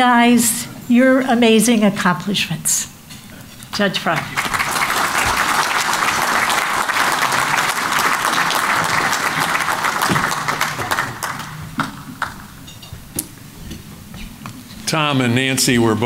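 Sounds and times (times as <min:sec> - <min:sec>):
audience applauding: 0:04.0 - 0:12.6.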